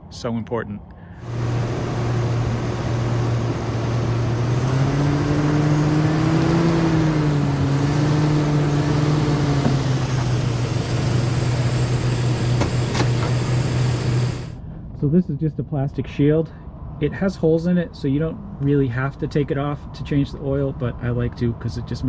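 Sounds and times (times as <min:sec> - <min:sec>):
truck engine humming: 0:01.0 - 0:14.9.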